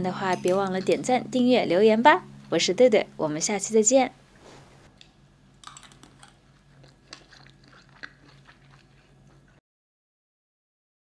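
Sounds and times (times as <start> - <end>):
chewing crisp food: 5.6 - 9.6.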